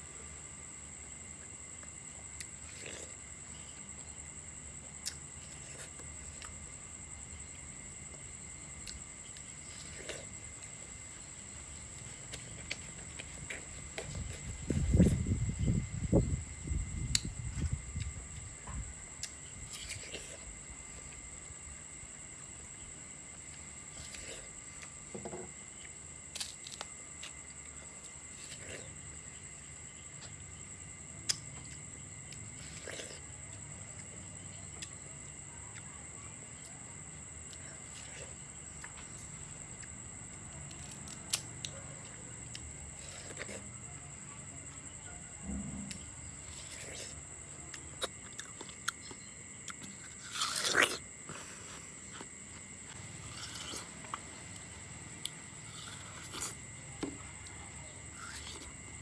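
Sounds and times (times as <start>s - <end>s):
high-pitched insect trill: 0.0s - 59.0s
person chewing watermelon: 1.8s - 4.2s, 4.8s - 15.9s, 17.0s - 21.3s, 22.7s - 25.0s, 25.7s - 29.4s, 31.2s - 35.0s, 37.3s - 39.9s, 40.6s - 43.9s, 45.8s - 59.0s.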